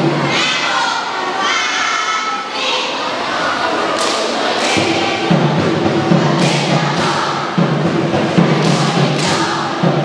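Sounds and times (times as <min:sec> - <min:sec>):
students chanting in unison: 0:00.0 - 0:10.0
rhythmic thuds: 0:03.9 - 0:10.0.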